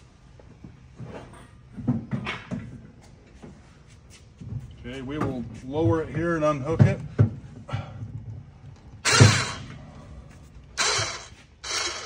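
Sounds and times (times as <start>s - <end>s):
winch clunk: 9.0s - 9.8s, 10.8s - 12.0s
electric winch mechanical noise: 9.0s - 12.0s.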